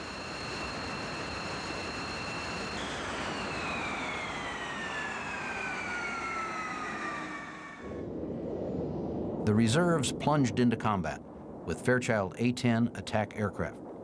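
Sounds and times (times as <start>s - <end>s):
rushing roar: 0.0s - 8.1s
jet engine whine: 0.0s - 12.4s.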